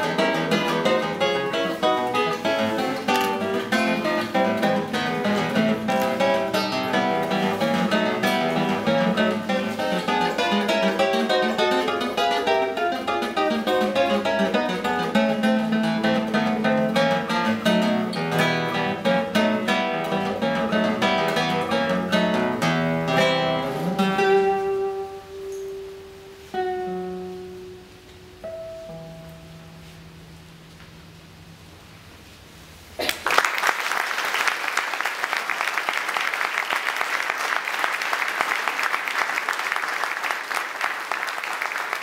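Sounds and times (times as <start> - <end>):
classical guitar playing: 0.0 - 32.4.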